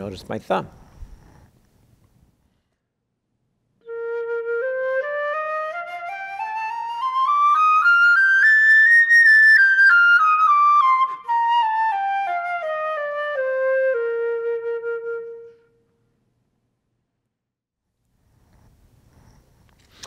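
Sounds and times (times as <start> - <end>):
flute playing a scale: 3.8 - 15.9.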